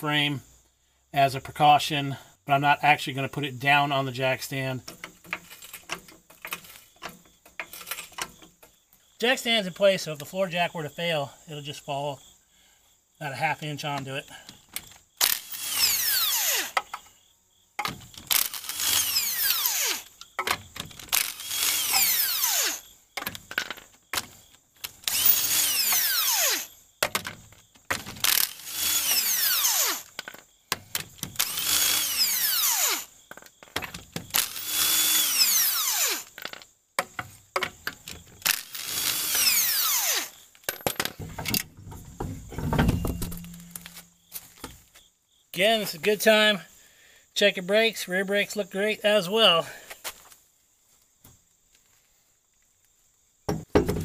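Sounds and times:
impact wrench spinning: 0:18.3 - 0:20.1, 0:38.4 - 0:40.3.

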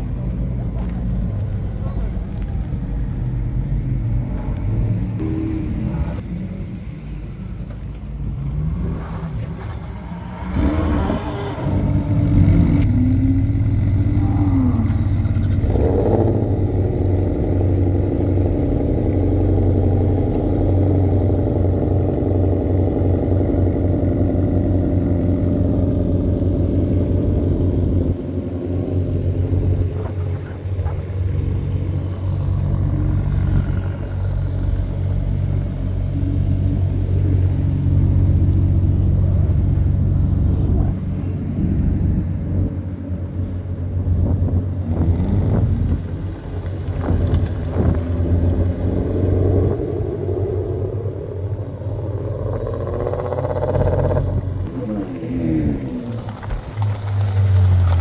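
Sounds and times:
car engines revving and idling: 0:00.0 - 0:58.0.

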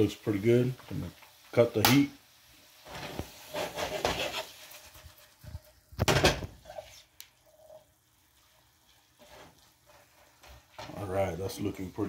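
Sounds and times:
plastic spatula scraping frying pan: 0:02.8 - 0:05.7, 0:09.2 - 0:10.8.

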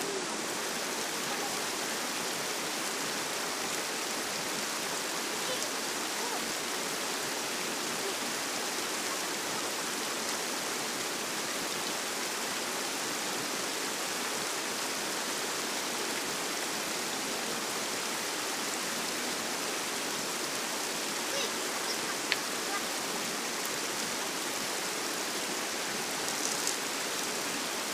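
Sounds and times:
river water rushing: 0:00.0 - 0:27.9.

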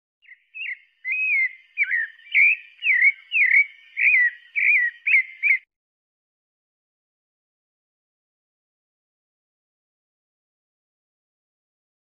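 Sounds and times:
thrush singing whistled phrases: 0:00.2 - 0:05.7.

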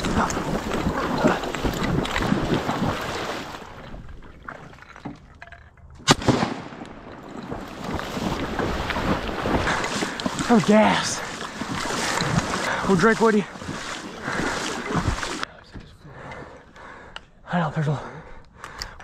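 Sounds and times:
shotgun shot: 0:06.0 - 0:06.8.

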